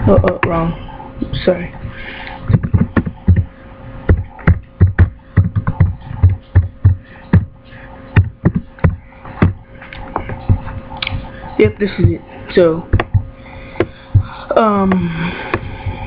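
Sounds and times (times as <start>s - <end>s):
faint steady hum: 0.0s - 16.0s
computer keyboard typing: 2.5s - 3.5s, 4.1s - 6.7s.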